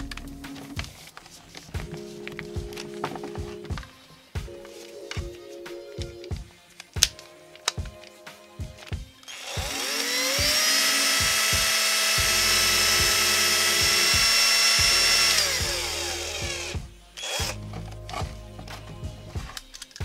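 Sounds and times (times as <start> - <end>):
background music with steady beat: 0.0 - 20.0
cordless drill whining: 9.2 - 17.6.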